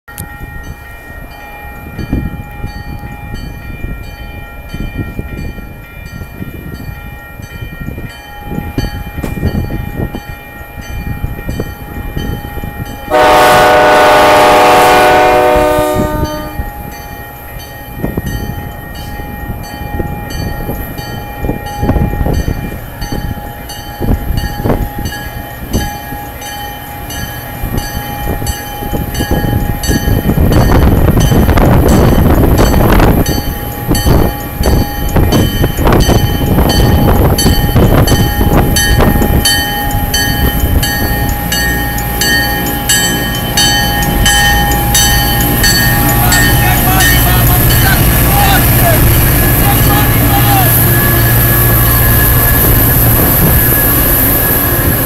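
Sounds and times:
railroad crossing bell dinging: 0.1 - 55.0
train low rumble: 0.1 - 55.0
locomotive air horn blast: 13.1 - 16.7.

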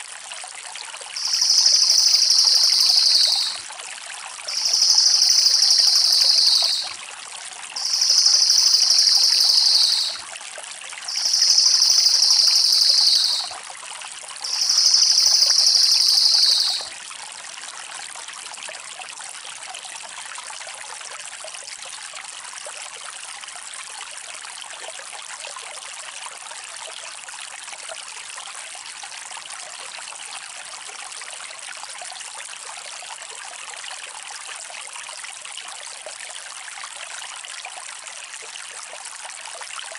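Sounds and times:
trickling stream: 0.0 - 39.9
bird rattling trills: 1.2 - 3.6, 4.5 - 6.9, 7.8 - 10.2, 11.1 - 13.5, 14.5 - 16.9.

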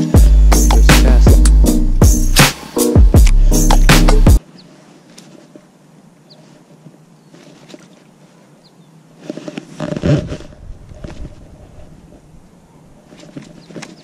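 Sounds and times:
birds chirping: 0.0 - 5.5, 6.2 - 9.5, 12.2 - 14.0
rod handling rustling and scraping: 6.3 - 8.1, 9.2 - 12.2, 13.0 - 14.0.

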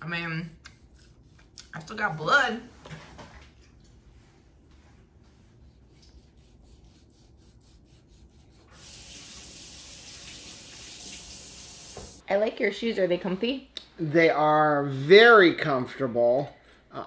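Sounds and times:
knife sawing meat slices: 5.7 - 8.7.

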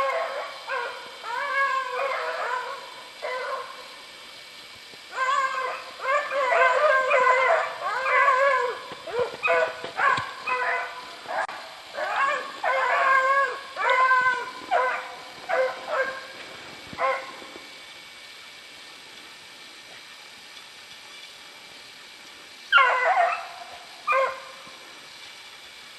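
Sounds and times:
dog howling and whining: 0.0 - 3.7, 5.1 - 16.2.

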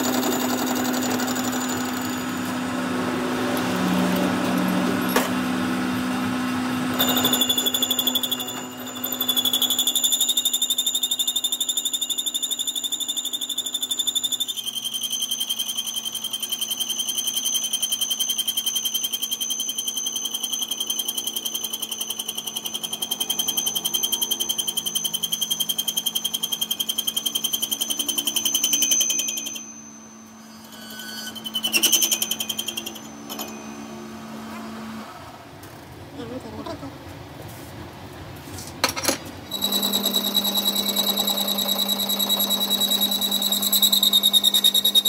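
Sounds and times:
lathe tool chattering squeal: 0.0 - 2.7, 6.8 - 34.5, 39.5 - 45.0
lathe machine hum: 0.0 - 9.9.

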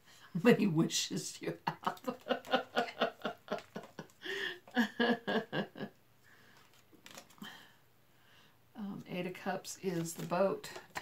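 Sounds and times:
tarot cards handled: 6.4 - 7.5, 9.8 - 11.0.

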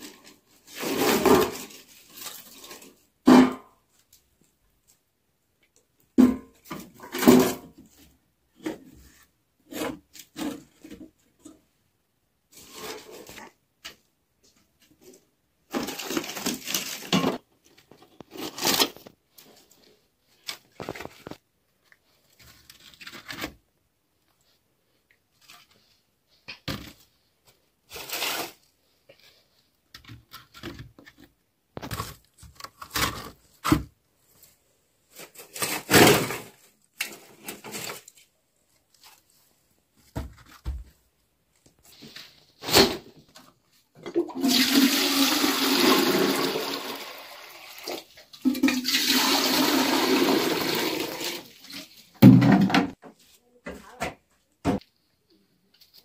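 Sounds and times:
water pouring into kettle: 44.2 - 51.5.

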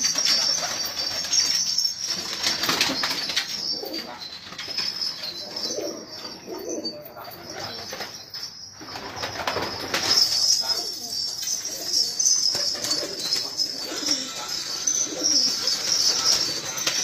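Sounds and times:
wings flapping: 0.0 - 5.1, 8.8 - 10.6
steady high chirring: 0.0 - 17.0
pigeons cooing: 2.5 - 8.2, 8.8 - 17.0.

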